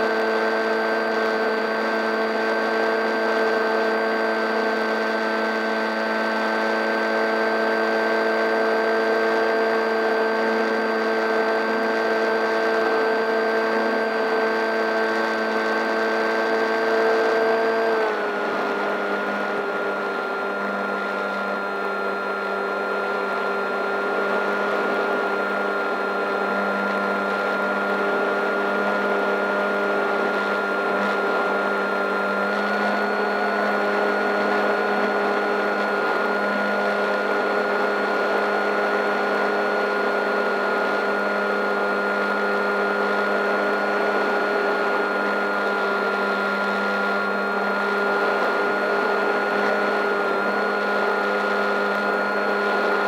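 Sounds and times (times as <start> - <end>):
model plane motor whine: 0.0 - 53.0.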